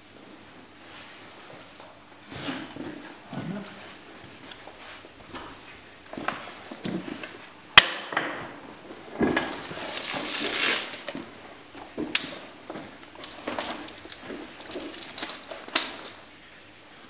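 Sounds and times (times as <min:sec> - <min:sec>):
leather saddle rustling: 0:09.0 - 0:16.3
stirrup irons and buckles jingling: 0:09.2 - 0:11.2, 0:12.1 - 0:12.6, 0:13.2 - 0:16.3.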